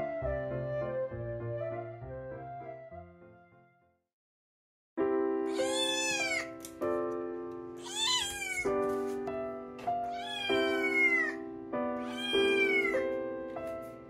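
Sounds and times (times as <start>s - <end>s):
background music with held notes: 0.0s - 3.9s, 5.0s - 14.0s
cat meowing: 5.5s - 6.6s, 7.8s - 8.8s, 10.0s - 11.4s, 12.0s - 13.1s.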